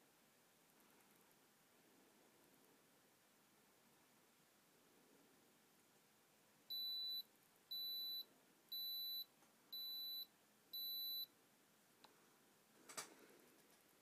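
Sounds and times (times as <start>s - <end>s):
thermometer beeping: 6.7s - 11.3s.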